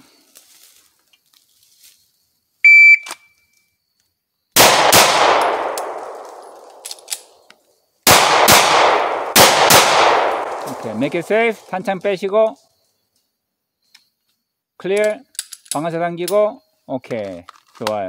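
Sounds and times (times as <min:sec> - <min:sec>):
shot timer beep: 0:02.7 - 0:03.1
pistol shots echoing: 0:04.6 - 0:06.8, 0:08.0 - 0:11.3.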